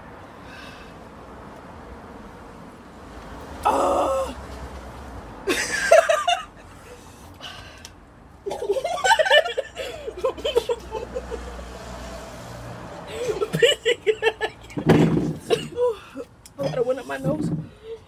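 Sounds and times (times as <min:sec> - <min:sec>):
women laughing: 0:05.5 - 0:06.6, 0:08.5 - 0:11.7, 0:13.1 - 0:14.9.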